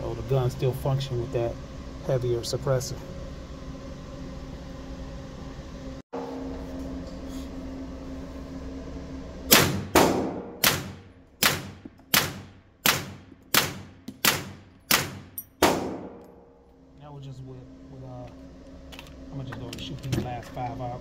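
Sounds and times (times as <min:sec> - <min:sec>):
suppressed pistol shots: 0:09.5 - 0:16.3.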